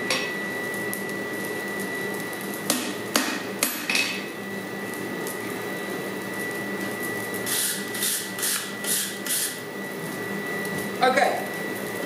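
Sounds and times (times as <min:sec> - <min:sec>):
mechanical hum with whine: 0:00.0 - 0:12.0
hammer strikes on hot steel: 0:02.7 - 0:04.3.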